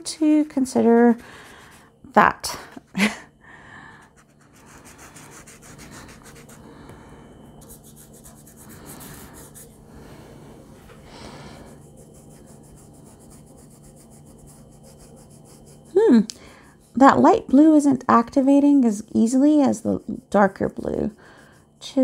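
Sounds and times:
paintbrush rubbing on paper: 0.0 - 2.0, 4.0 - 6.6, 7.6 - 9.8, 11.5 - 16.0, 19.3 - 22.0.

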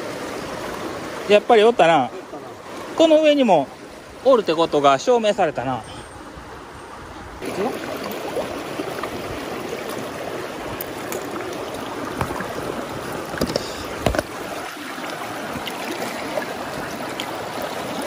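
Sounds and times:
mountain stream rushing: 0.0 - 18.0.

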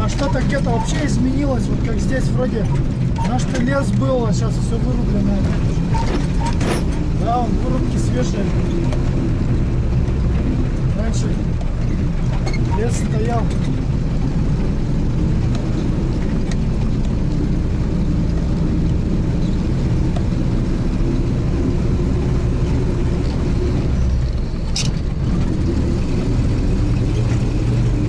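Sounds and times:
vehicle engine and road rumble: 0.0 - 28.0.

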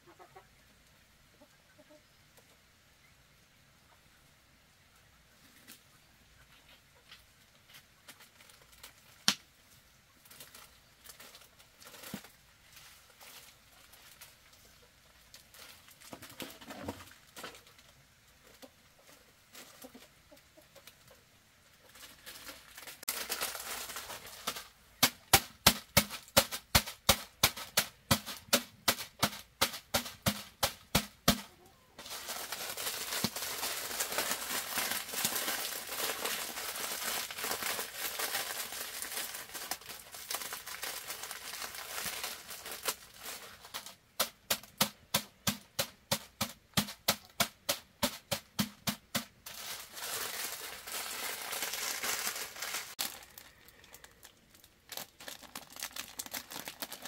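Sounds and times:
chickens clucking: 0.0 - 2.6, 16.2 - 22.2, 31.4 - 32.1.

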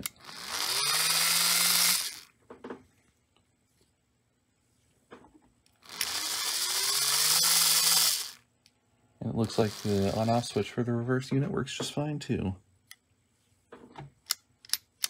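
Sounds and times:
electric motor whining: 0.0 - 2.3, 5.8 - 8.4, 9.4 - 10.4.

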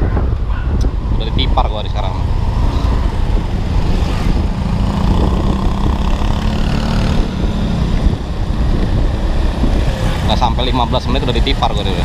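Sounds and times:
road and traffic noise: 0.0 - 12.0.

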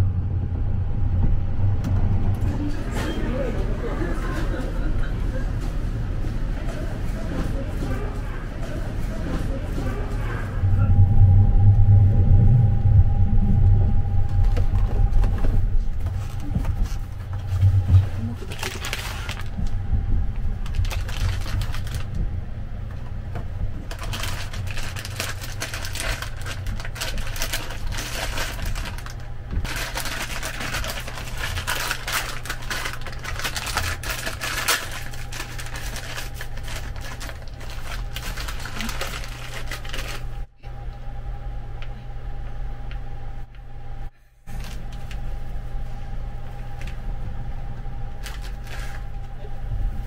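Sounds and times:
low train rumble: 0.0 - 50.0
paper crinkling and rustling: 14.4 - 19.8, 20.5 - 22.2, 23.8 - 40.5, 44.5 - 45.4, 48.1 - 49.4
paper tearing: 18.4 - 19.6, 20.6 - 22.1, 23.9 - 40.3.

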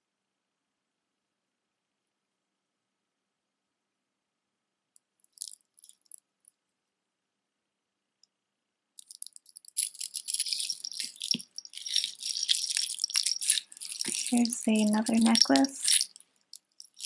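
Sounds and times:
beads clicking: 5.2 - 6.2, 9.0 - 17.0
beads and chains clattering: 5.4 - 6.2, 9.0 - 17.0.

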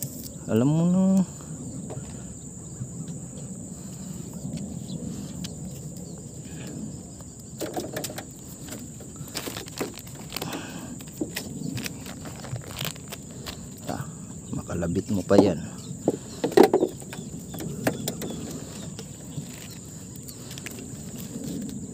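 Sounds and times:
high-pitched insect drone: 0.0 - 21.9
short clicks and rustles: 7.6 - 13.6.

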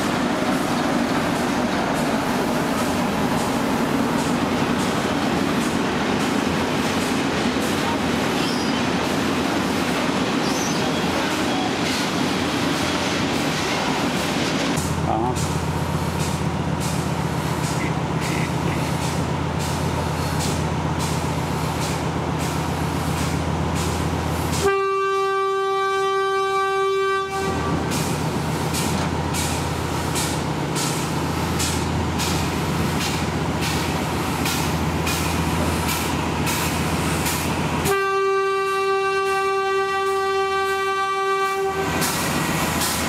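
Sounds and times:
steam locomotive exhaust beats: 0.0 - 43.0
steam whistle blast: 24.6 - 27.8, 37.9 - 42.0.

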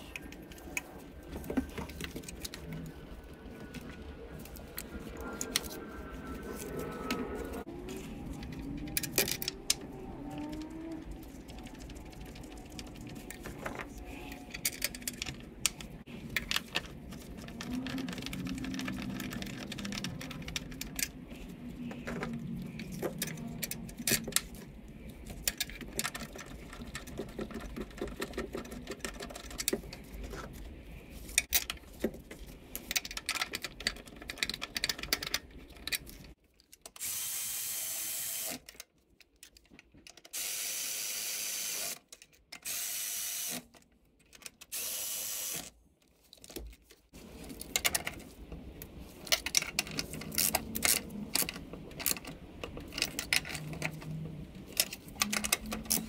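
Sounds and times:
parts clicking and rattling: 0.0 - 37.0, 38.5 - 40.4, 43.5 - 44.7, 45.6 - 56.0
electric ratchet whirring: 37.0 - 38.6, 42.6 - 43.6, 44.7 - 45.7.

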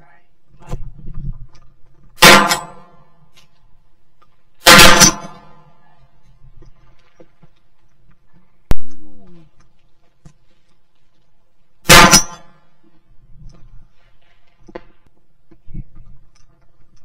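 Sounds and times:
shotgun shots: 2.2 - 2.9, 4.6 - 5.6, 11.8 - 12.6.

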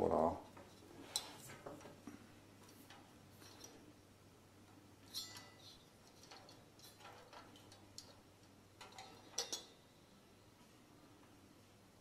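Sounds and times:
light clicks of steel parts: 2.6 - 3.9, 4.6 - 9.8.

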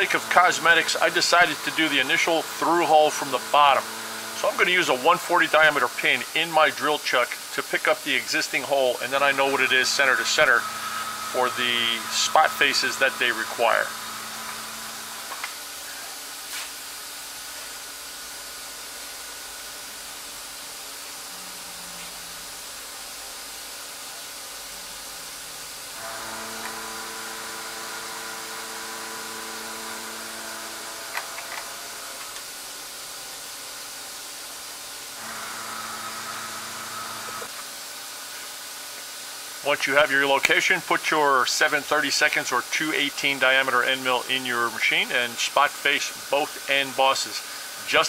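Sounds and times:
machine whine: 0.0 - 16.1, 24.2 - 34.0, 35.1 - 37.6
machine hiss with faint hum: 0.0 - 48.0.

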